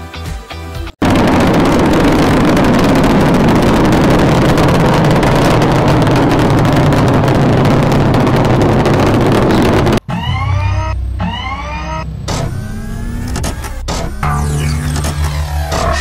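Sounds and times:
loud steady rumbling: 0:01.0 - 0:16.0
low drone: 0:01.0 - 0:16.0.

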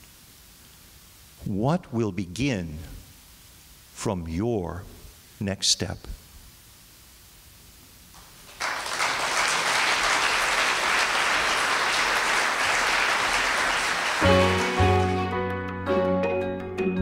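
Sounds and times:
audience applauding: 0:08.2 - 0:15.4
music: 0:13.8 - 0:17.0.

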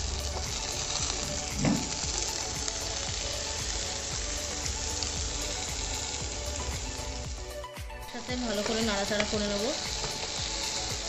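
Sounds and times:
vegetables sizzling in oil: 0:00.0 - 0:11.0
short thump: 0:01.6 - 0:01.9.

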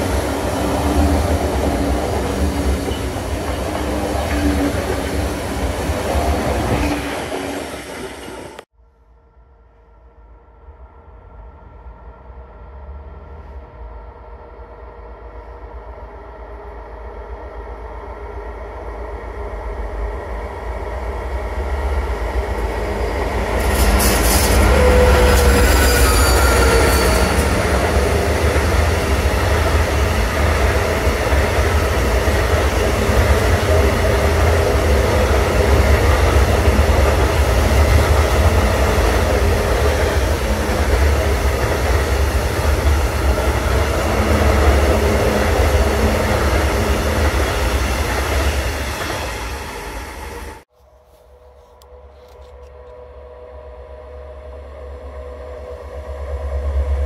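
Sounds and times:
train heavy rumble: 0:00.0 - 0:08.7, 0:11.2 - 0:50.7
train wheels squealing: 0:01.5 - 0:05.4, 0:23.0 - 0:31.3.

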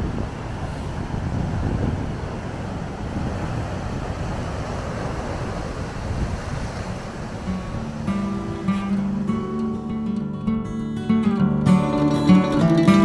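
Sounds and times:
surf breaking against rocks: 0:00.0 - 0:09.7
wind buffeting microphone: 0:00.0 - 0:10.1.

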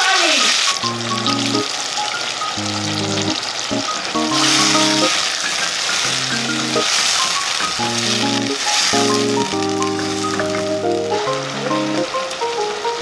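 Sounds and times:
steady hiss: 0:00.0 - 0:13.0
bass and chord background music: 0:00.8 - 0:01.6, 0:02.6 - 0:05.1, 0:06.1 - 0:06.8, 0:07.8 - 0:12.2.

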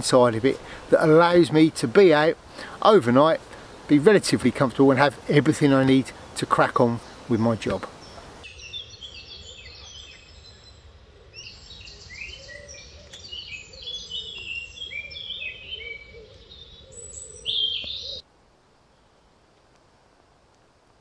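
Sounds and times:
faint hiss: 0:00.0 - 0:08.7
songbirds chirping and whistling: 0:05.6 - 0:18.2.

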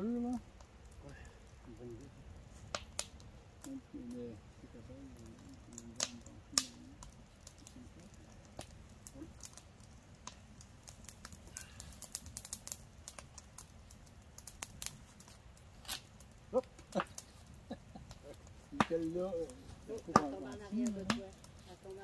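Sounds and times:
sharp clicks and crackles: 0:05.1 - 0:22.0.

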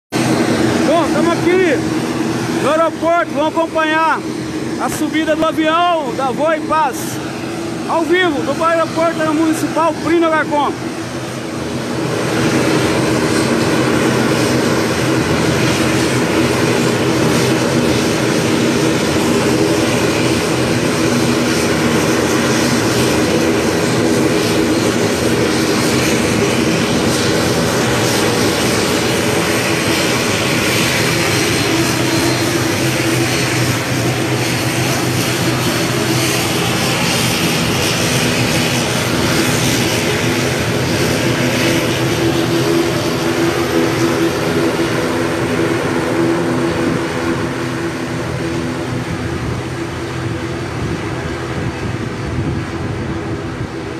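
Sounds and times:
airplane engines droning: 0:00.1 - 0:53.9.

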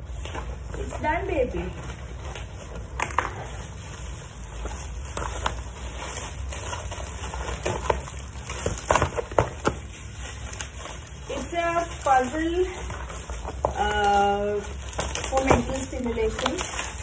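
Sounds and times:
plastic wrap crinkling: 0:00.0 - 0:17.0
dog chewing cardboard: 0:01.9 - 0:14.1.

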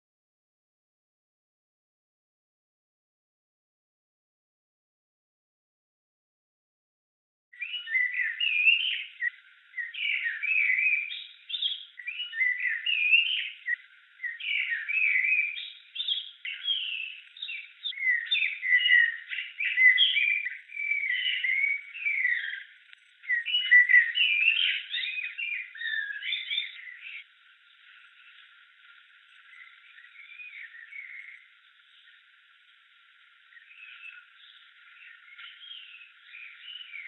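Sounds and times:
songbirds chirping: 0:07.6 - 0:37.0.

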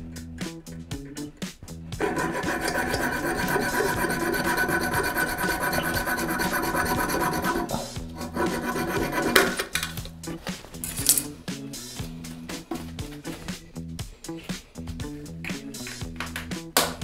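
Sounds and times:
hacksaw rasping through bolt: 0:02.0 - 0:10.0.

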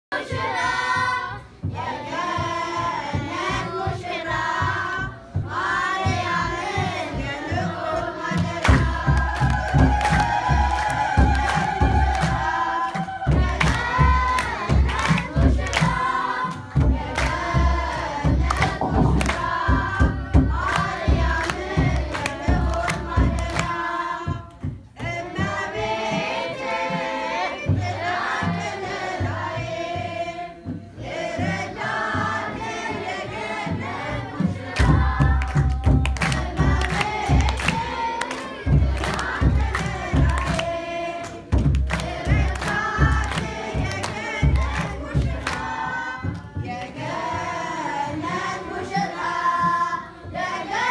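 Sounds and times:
choir singing a hymn: 0:00.1 - 0:50.9
rhythmic hand clapping: 0:00.2 - 0:50.9
steady low beat: 0:13.3 - 0:24.4.

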